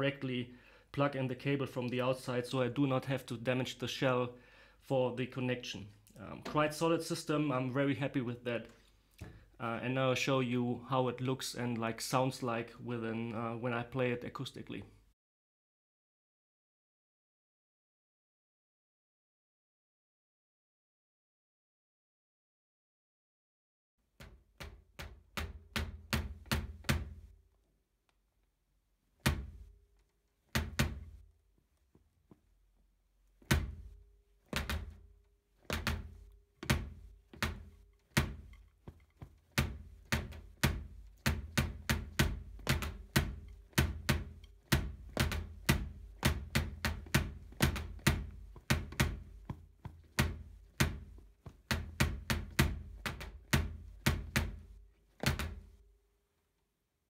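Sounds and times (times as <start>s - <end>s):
kick drum thuds: 24.2s - 27.4s, 29.2s - 29.7s, 30.6s - 31.2s, 33.4s - 55.8s.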